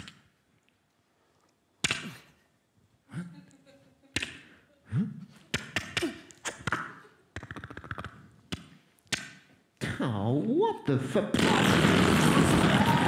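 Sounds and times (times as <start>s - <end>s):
mouth clicks and pops: 1.8s - 2.3s, 5.5s - 9.5s.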